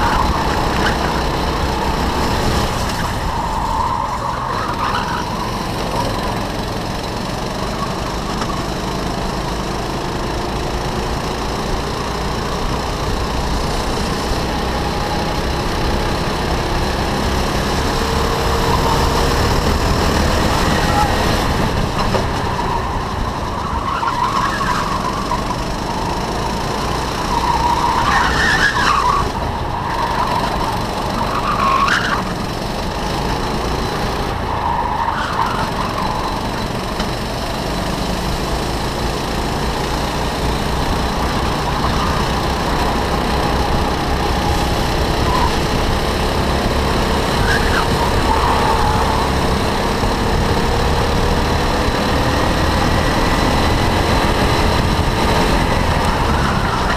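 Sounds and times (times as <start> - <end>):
another kart engine: 0.0 - 56.9
go-kart engine at speed: 0.0 - 56.9
tyre squeals: 2.9 - 6.2, 20.5 - 26.2, 27.2 - 32.6, 47.3 - 49.5.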